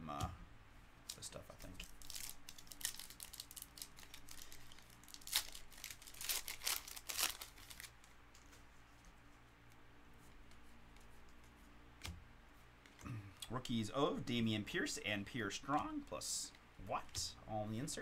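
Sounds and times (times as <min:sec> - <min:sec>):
foil wrapper crinkling and tearing: 0:01.1 - 0:08.0.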